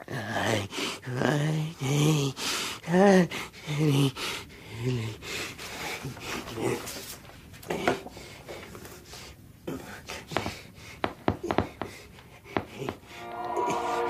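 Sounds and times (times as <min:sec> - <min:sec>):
soft breathing: 0:07.8 - 0:14.0
music: 0:13.2 - 0:14.0.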